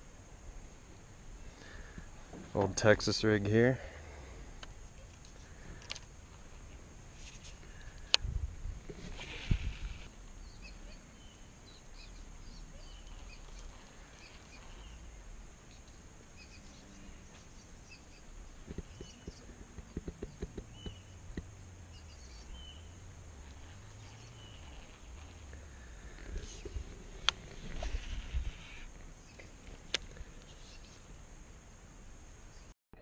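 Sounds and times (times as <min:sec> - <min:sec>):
small birds chirping: 0:09.0 - 0:31.1.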